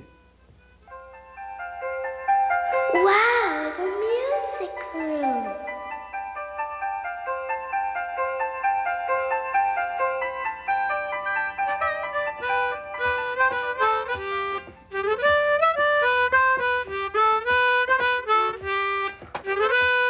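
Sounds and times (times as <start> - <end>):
harmonica playing a tune: 0.0 - 20.0.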